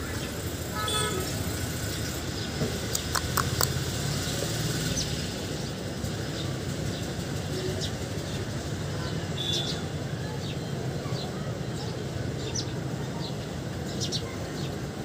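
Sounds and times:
short high clicks: 0:02.9 - 0:03.8.

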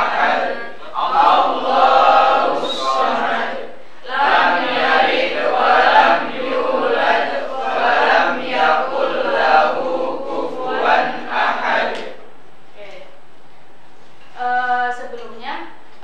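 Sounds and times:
group of voices chanting in unison: 0:00.0 - 0:12.3.

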